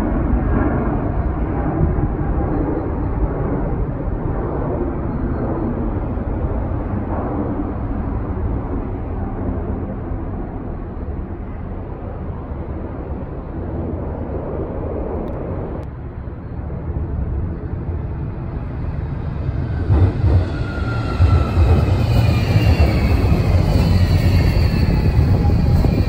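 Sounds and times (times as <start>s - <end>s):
jet airliner rumbling overhead: 0.0s - 26.0s
tram wheels on rails: 17.4s - 26.0s
tram motor whine: 18.0s - 26.0s.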